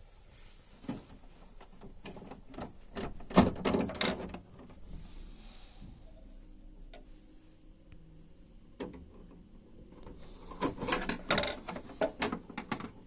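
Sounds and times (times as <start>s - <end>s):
plastic clicks and knocks: 8.8s - 9.4s, 10.0s - 13.0s.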